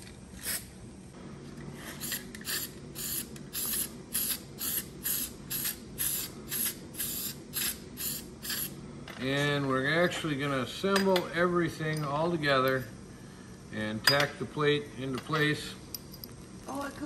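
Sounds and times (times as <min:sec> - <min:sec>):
aerosol can spraying: 0:02.0 - 0:08.7.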